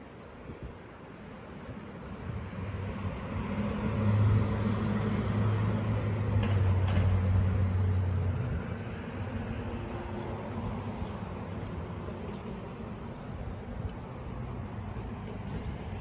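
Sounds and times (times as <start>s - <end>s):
background traffic: 0.0s - 16.0s
vehicle engine hum passing: 2.6s - 13.3s.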